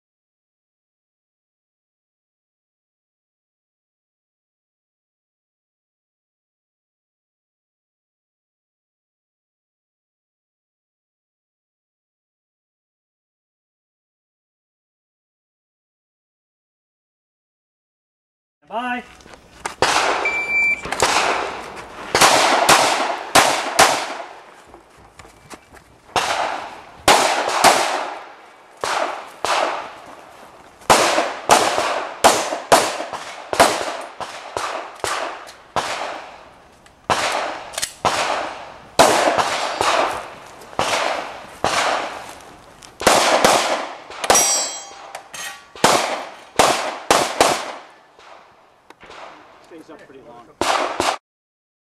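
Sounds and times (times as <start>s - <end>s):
pistol shots echoing: 19.8s - 24.5s, 26.1s - 30.0s, 30.9s - 36.5s, 37.1s - 42.2s, 43.0s - 49.5s, 50.6s - 51.2s
shot timer beep: 20.2s - 20.9s.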